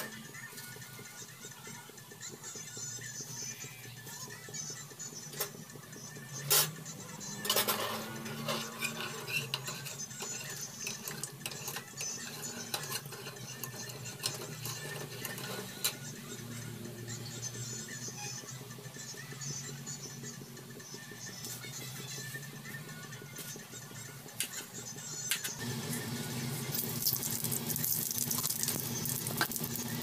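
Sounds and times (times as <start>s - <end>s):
metal ladle scraping a pot: 7.4s - 16.0s.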